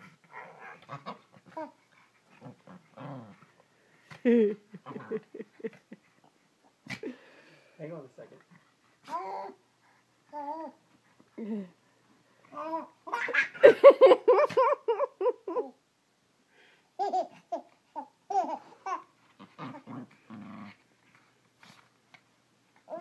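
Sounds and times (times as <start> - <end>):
dog growling: 0.0 - 3.6, 19.4 - 20.9
baby laughing and babbling: 9.0 - 9.7, 12.5 - 15.8, 17.0 - 19.8.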